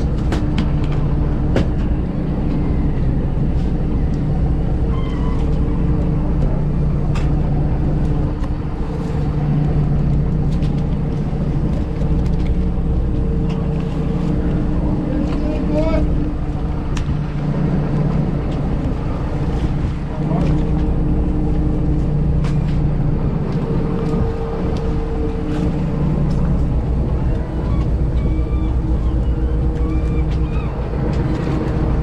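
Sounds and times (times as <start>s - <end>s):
boat engine humming: 0.0s - 32.0s
gull calls: 27.6s - 30.8s.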